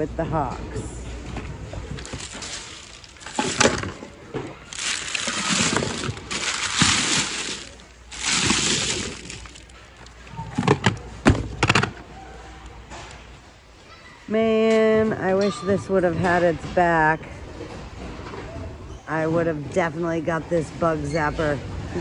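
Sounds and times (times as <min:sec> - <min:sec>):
hard items knocking and clinking: 0:01.3 - 0:12.0
plastic bag and paper crinkling: 0:01.9 - 0:10.8.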